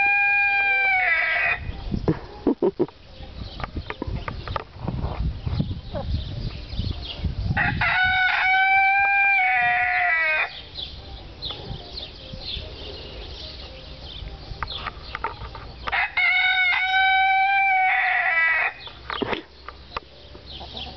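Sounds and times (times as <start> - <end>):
rooster crowing: 0.0 - 1.6, 7.6 - 10.5, 15.9 - 18.8
chicken clucking: 19.1 - 20.9.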